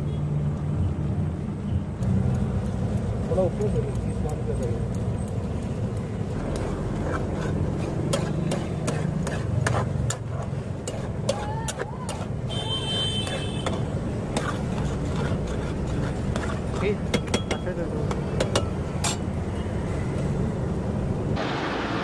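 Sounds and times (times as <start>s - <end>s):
road traffic rumble: 0.0s - 22.0s
metal spatula scraping steel pan: 6.5s - 17.6s.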